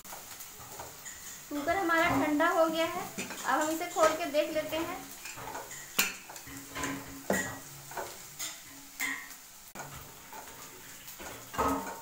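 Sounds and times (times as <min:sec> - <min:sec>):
onions sizzling in a pan: 0:00.0 - 0:12.0.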